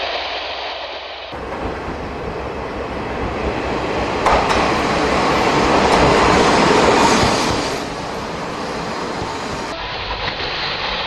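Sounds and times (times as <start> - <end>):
model train running on track: 1.3 - 11.0.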